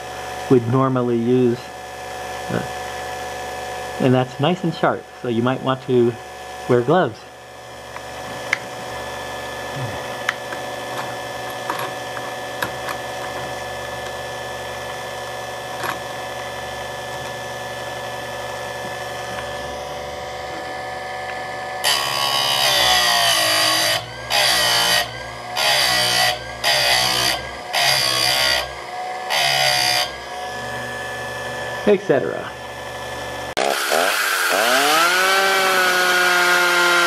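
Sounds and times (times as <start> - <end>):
sharpener motor running: 7.5 - 37.0
grinding wheel grinding metal: 7.7 - 37.0.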